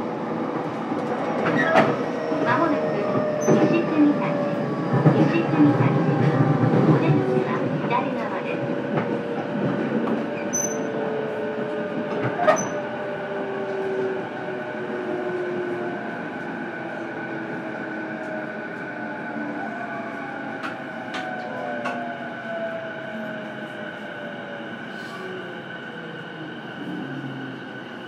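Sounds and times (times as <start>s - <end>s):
train running noise: 0.0s - 19.2s.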